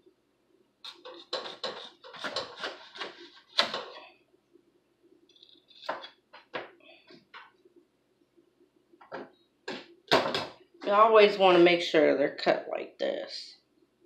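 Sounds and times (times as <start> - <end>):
dishes and utensils clattering: 0.9 - 4.0.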